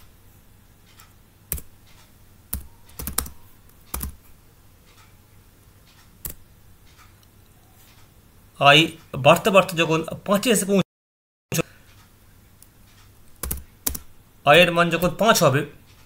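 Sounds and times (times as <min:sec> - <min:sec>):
keyboard keystrokes: 0:02.5 - 0:04.2, 0:13.3 - 0:14.1.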